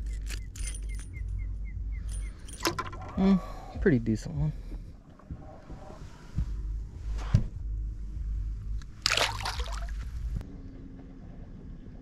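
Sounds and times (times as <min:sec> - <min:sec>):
low rumble: 0:00.0 - 0:12.0
water splashing and sloshing: 0:08.8 - 0:10.4.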